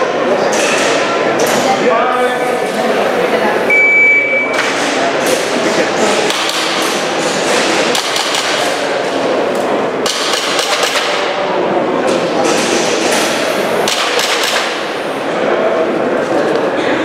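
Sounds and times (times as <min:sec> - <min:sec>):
airsoft pistol shots: 0:13.9 - 0:14.8.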